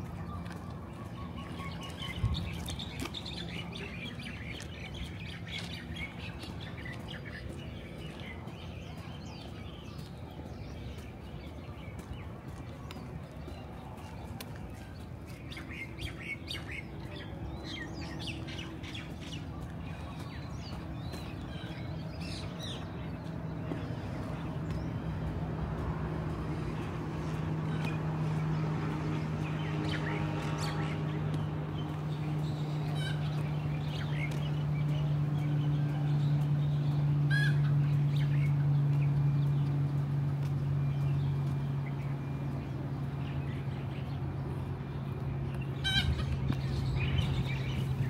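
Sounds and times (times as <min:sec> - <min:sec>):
low street hum: 0:00.0 - 0:48.0
small birds chirping: 0:00.0 - 0:48.0.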